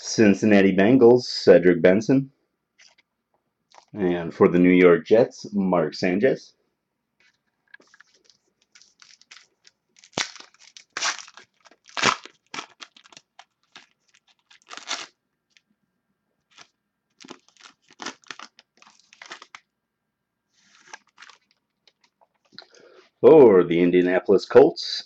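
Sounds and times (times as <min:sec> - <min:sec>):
cards being shuffled: 0:02.8 - 0:03.0, 0:07.2 - 0:15.6, 0:16.5 - 0:19.6, 0:20.6 - 0:22.6
card pack wrapper tearing: 0:07.8 - 0:15.6, 0:16.5 - 0:19.7, 0:20.6 - 0:22.5.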